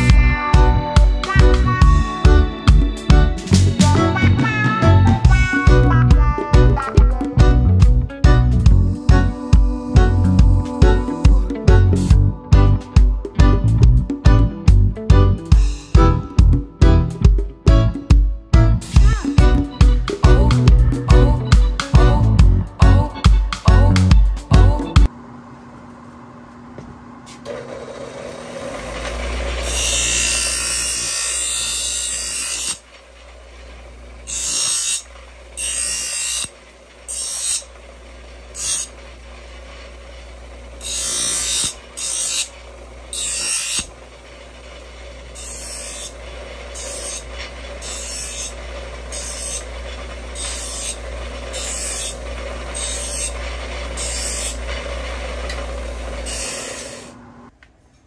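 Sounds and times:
bench grinder humming: 26.7 - 57.5
sheet metal grinding on wheel: 27.5 - 57.2.

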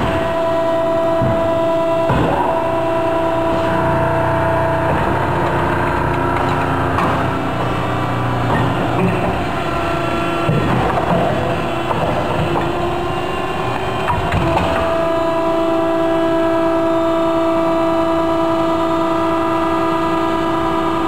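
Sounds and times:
steady pitched machine drone: 0.0 - 21.0
machine clatter: 2.1 - 14.9.

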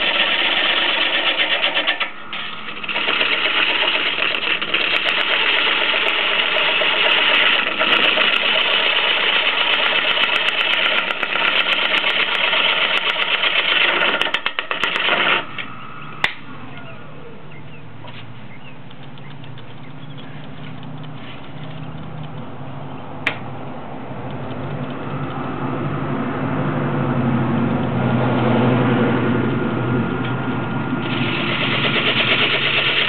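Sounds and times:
lathe gouge scraping wood: 0.0 - 15.5, 31.0 - 33.0
sharp click: 18.0 - 22.6, 23.2 - 23.5, 24.2 - 25.4.

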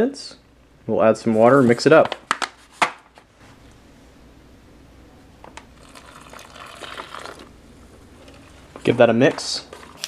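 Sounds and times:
foil pouch crinkling: 5.8 - 7.5
water pouring into pouch: 5.8 - 7.5.

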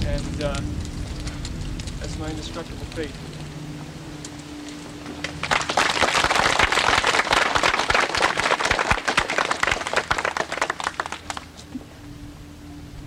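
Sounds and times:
audience applauding: 5.2 - 11.5.

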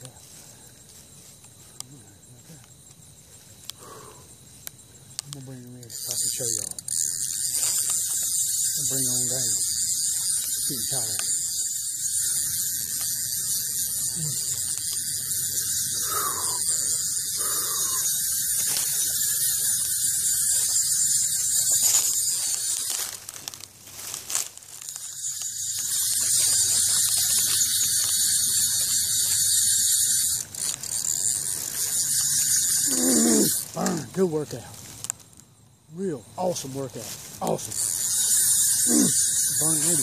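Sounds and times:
fishing reel ratcheting buzz: 5.2 - 34.4, 37.4 - 40.0.

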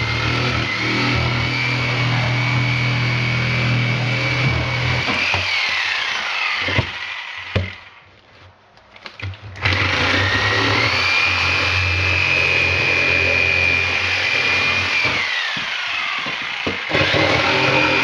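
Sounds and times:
reciprocating saw whining: 0.0 - 8.0, 9.6 - 18.0
knocks: 15.5 - 16.9.

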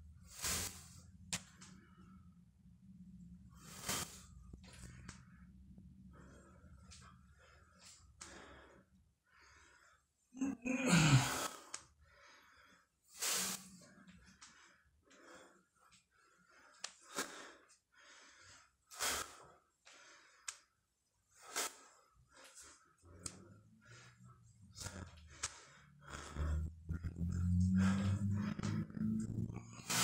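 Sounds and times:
man breathing hard: 6.0 - 28.7
low voiced grunt: 10.4 - 11.5.

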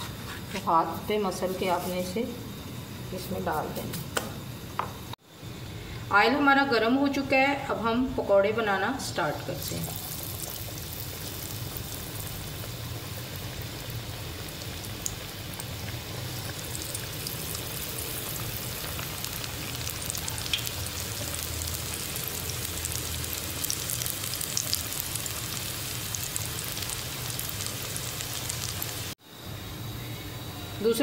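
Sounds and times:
deep-frying sizzle: 9.0 - 29.2
oil crackling and popping: 9.6 - 29.2.

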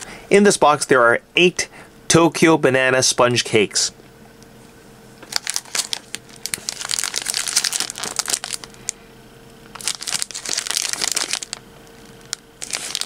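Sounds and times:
plastic wrapper crinkling: 5.2 - 9.0, 9.6 - 13.0.

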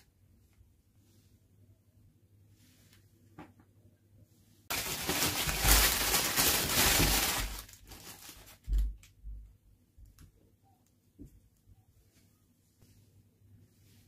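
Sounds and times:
plastic wrapping crinkling: 4.7 - 9.1.

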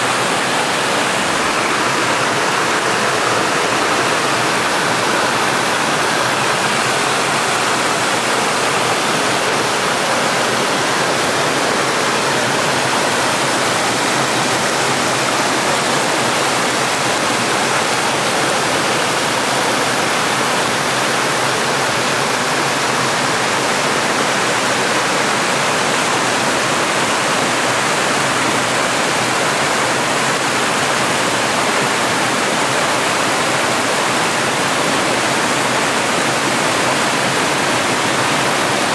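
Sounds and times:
stream rushing over rocks: 0.0 - 38.9.

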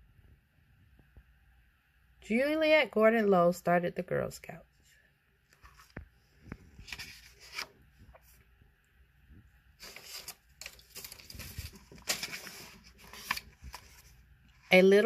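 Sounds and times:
paper pages rustling: 5.5 - 8.4, 9.8 - 14.8.

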